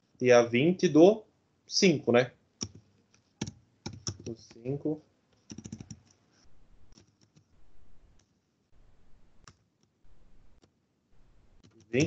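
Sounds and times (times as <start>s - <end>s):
faint keyboard keystrokes: 2.6s - 4.6s, 5.4s - 6.2s.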